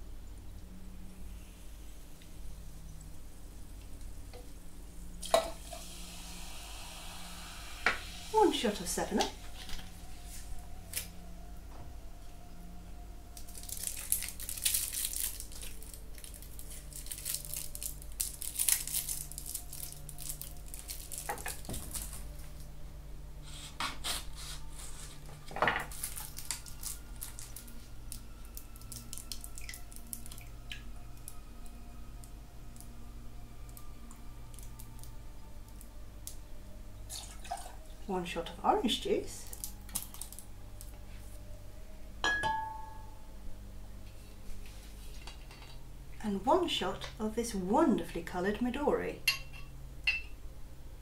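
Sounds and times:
soda fizzing and crackling: 0:01.4 - 0:11.1, 0:13.4 - 0:22.7, 0:25.9 - 0:31.3, 0:37.1 - 0:40.4.

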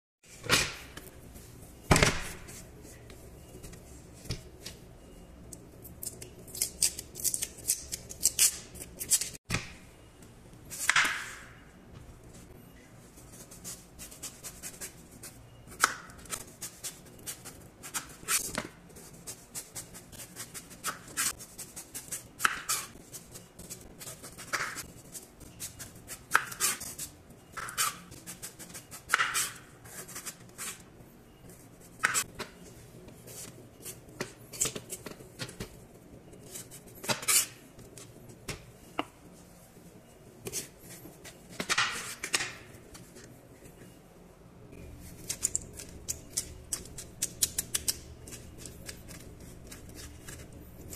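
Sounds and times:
knife scraping melon rind: 0:45.0 - 0:50.9.

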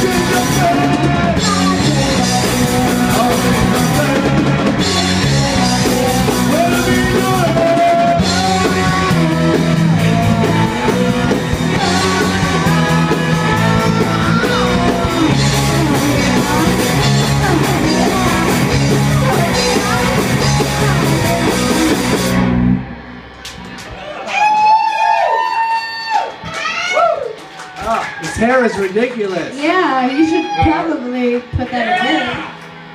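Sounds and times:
person singing: 0:00.0 - 0:22.2
punk rock band playing live: 0:00.0 - 0:24.0.

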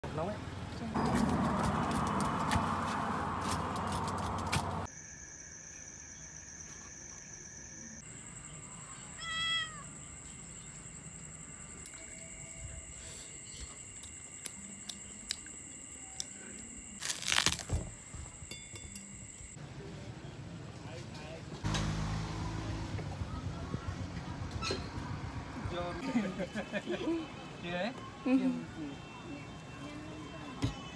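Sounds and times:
cat meowing: 0:09.2 - 0:09.9.

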